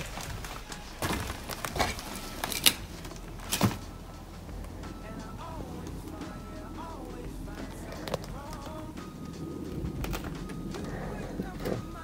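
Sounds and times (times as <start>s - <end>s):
footsteps on broken wooden boards: 0.0s - 4.9s, 9.6s - 12.0s.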